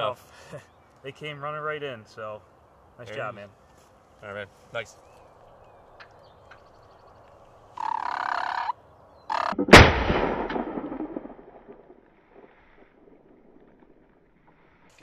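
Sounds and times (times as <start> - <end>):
turkey gobbling: 7.8 - 8.7
shotgun shot with echo: 9.5 - 12.0.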